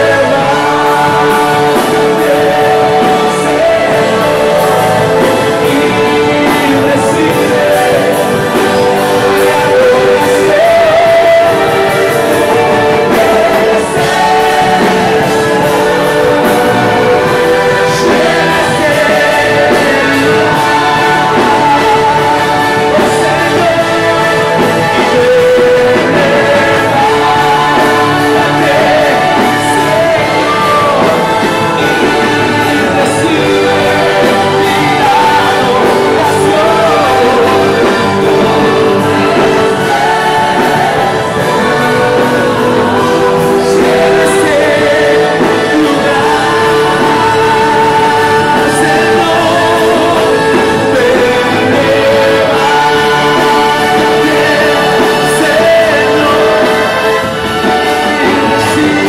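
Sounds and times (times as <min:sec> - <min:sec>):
worship music with voices singing: 0:00.0 - 0:59.0.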